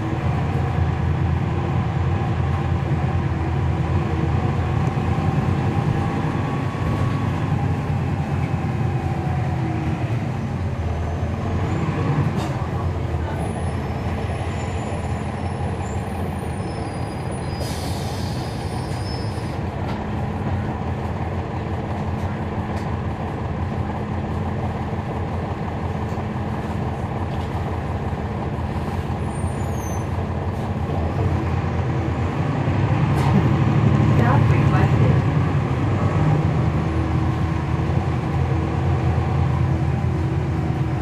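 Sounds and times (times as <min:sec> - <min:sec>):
bus diesel engine running: 0:00.0 - 0:41.0
brief high squeals: 0:29.3 - 0:30.2.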